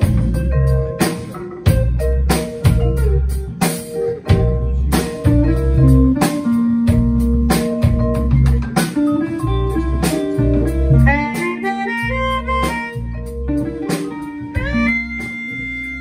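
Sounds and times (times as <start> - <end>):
blues band jamming: 0.0 - 16.0
drum beat: 0.0 - 16.0
harmonica notes: 9.4 - 16.0.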